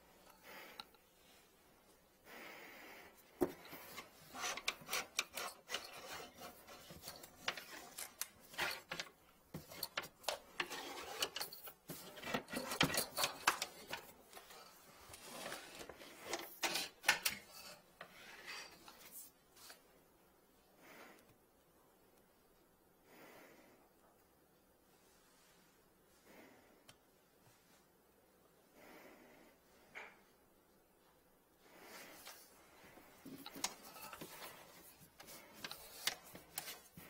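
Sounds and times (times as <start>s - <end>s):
cable scraping through gloved hand: 3.5s - 19.0s.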